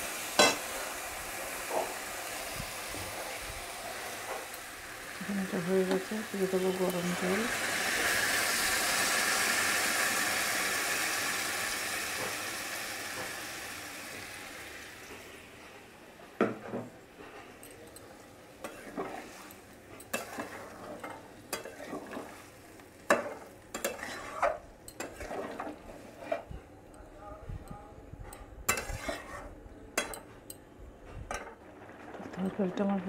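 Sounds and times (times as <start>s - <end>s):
water sizzling in hot pan: 0.0s - 16.0s, 17.0s - 26.5s
metal spatula scraping pan: 18.6s - 22.5s, 23.1s - 26.5s, 28.7s - 30.2s.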